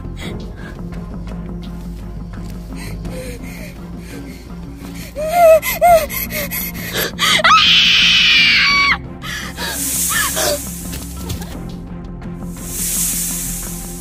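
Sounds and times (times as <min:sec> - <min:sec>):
dramatic background music: 0:00.0 - 0:14.0
hissing rush: 0:02.8 - 0:11.7, 0:12.4 - 0:14.0
woman crying out: 0:05.1 - 0:09.0.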